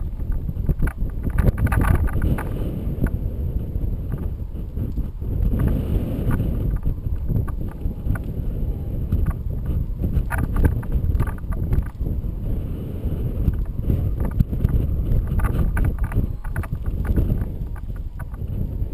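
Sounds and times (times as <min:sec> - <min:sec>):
wind buffeting microphone: 0:00.0 - 0:18.9
clicks and rattles: 0:00.2 - 0:03.2, 0:13.5 - 0:18.4.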